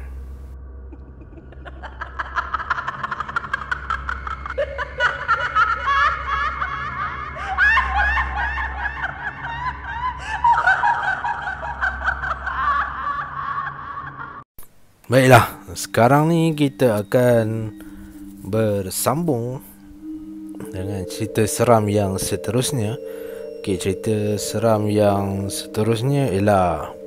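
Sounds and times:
low steady drone: 0.0s - 12.4s
high-pitched laughter: 0.9s - 14.4s.

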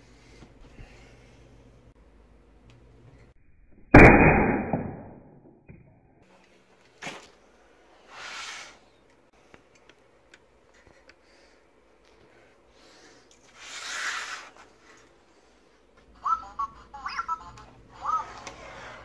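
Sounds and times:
air rifle shot tail: 3.9s - 5.4s.

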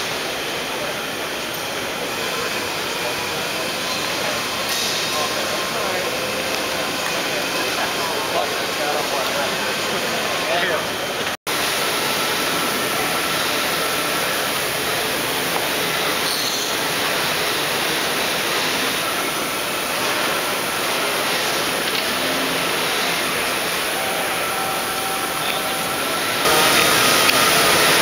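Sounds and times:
machinery din in large hall: 0.0s - 28.0s.

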